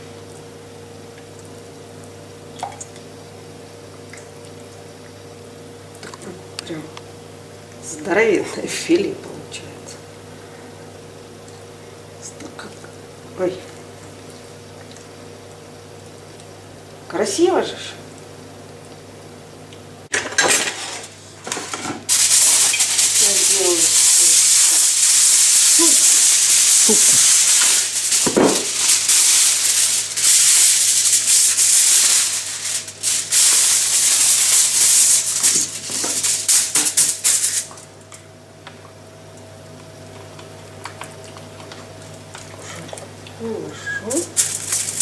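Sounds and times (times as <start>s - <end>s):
kitchen foil crinkling: 20.7s - 38.0s, 43.9s - 45.0s.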